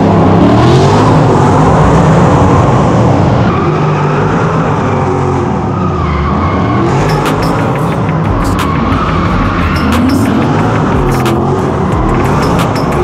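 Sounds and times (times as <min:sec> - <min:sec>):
car engine revving hard: 0:00.0 - 0:13.0
tyres screeching: 0:05.7 - 0:13.0.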